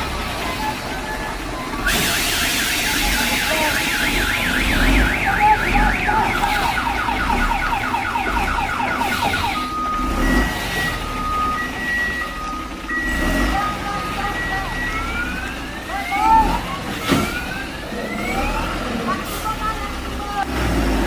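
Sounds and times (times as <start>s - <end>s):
truck engine rumble: 0.0s - 21.0s
electronic siren warbling: 1.6s - 12.3s.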